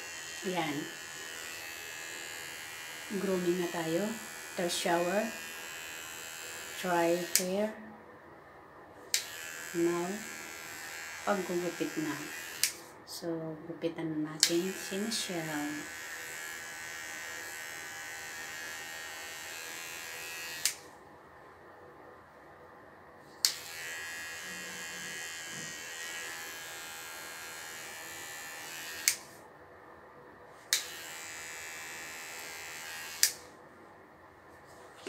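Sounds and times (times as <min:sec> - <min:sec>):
electric pet clipper whirring: 0:00.0 - 0:07.8, 0:09.1 - 0:12.9, 0:14.4 - 0:20.9, 0:23.4 - 0:29.4, 0:30.7 - 0:33.5.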